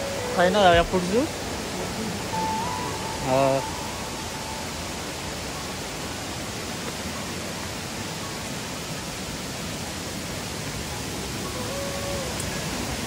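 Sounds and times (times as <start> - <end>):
water rushing in stream: 0.0 - 13.0.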